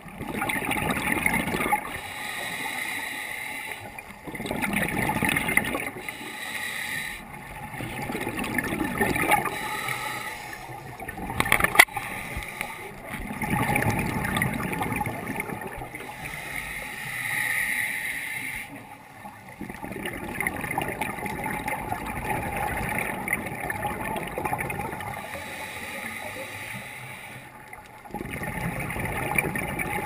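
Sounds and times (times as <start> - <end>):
underwater exhaled bubbles gurgling: 0.0 - 17.2, 18.4 - 30.0.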